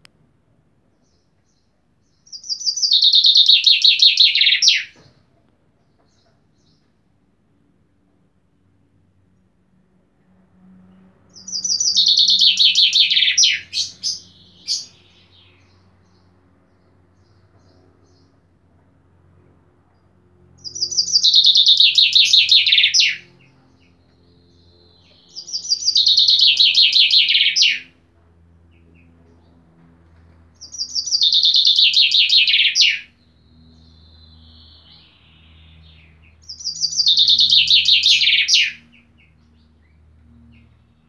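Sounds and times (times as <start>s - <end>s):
chaffinch singing: 1.0s - 5.1s, 11.3s - 18.4s, 20.6s - 27.9s, 30.6s - 40.8s.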